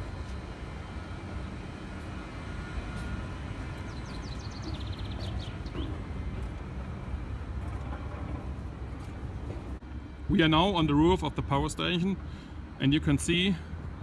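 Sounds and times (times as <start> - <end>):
low outdoor rumble: 0.0 - 14.0
small bird chirping and trilling: 3.8 - 5.9.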